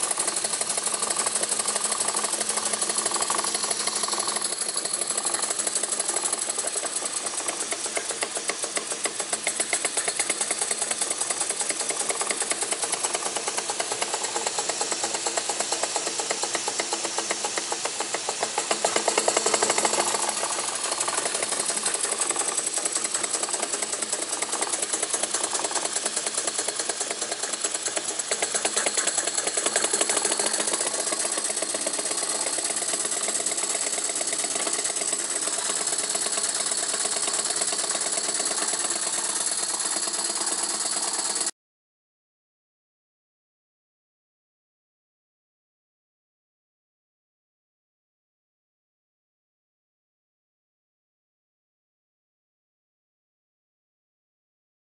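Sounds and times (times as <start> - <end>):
steam engine chuffing: 0.0 - 41.5
steam hiss: 0.0 - 41.5.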